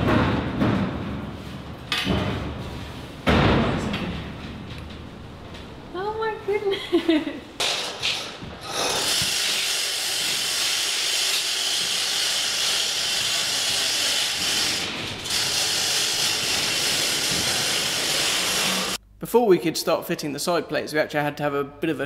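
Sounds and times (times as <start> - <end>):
steady loud hiss: 7.6 - 19.5.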